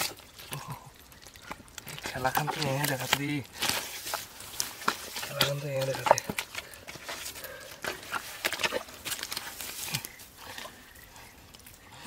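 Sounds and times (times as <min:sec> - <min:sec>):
hands squelching in wet mud: 0:00.0 - 0:12.0.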